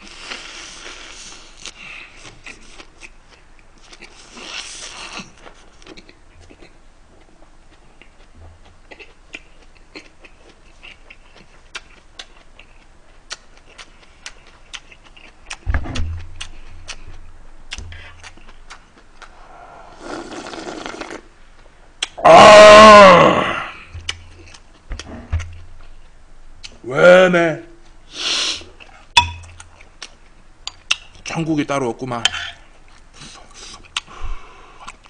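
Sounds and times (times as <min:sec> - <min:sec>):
close chewing: 0:01.6 - 0:15.6, 0:16.3 - 0:19.3
low thump: 0:15.6 - 0:16.3
slurping broth: 0:19.4 - 0:21.3
person sighing ahh: 0:22.2 - 0:23.9.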